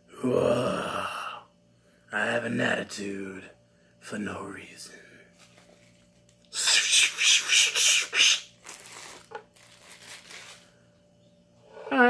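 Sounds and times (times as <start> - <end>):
hands rubbing together: 6.6 - 10.6.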